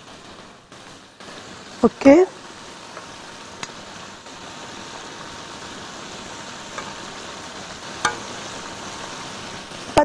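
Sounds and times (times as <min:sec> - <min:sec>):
fish sizzling in oil: 0:00.0 - 0:10.0
metal utensil clicking on pan: 0:06.7 - 0:07.0, 0:08.0 - 0:08.4.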